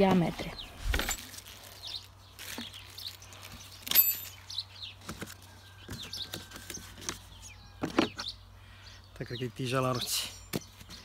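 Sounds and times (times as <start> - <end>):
plastic bag rustling: 0.0 - 5.5
birds chirping: 0.0 - 11.0.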